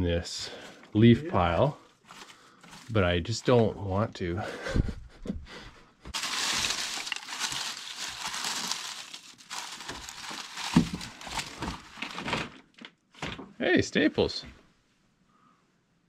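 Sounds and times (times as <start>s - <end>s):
hands rummaging through box: 2.1s - 3.6s, 6.1s - 12.8s.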